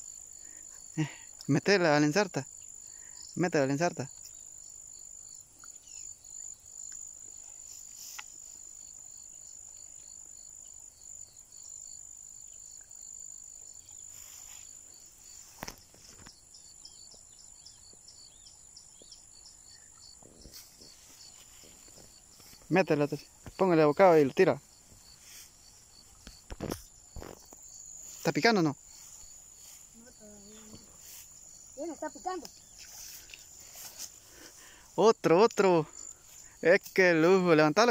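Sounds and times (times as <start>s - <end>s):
insects buzzing and chirping: 0.0s - 37.9s.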